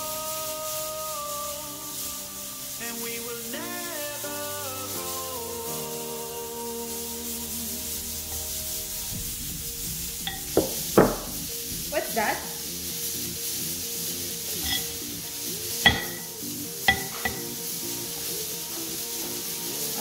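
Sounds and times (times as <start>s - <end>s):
soft background music: 0.0s - 20.0s
spoon scraping ceramic bowl: 10.3s - 11.3s, 14.6s - 15.0s, 15.8s - 17.5s
bowl knocking against pot: 10.3s - 11.4s, 15.9s - 16.3s, 16.9s - 17.4s.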